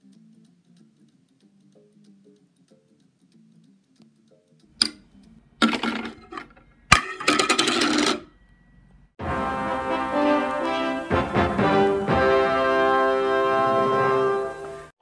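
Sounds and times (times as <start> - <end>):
disc rattling on wooden floor: 5.6 - 8.3.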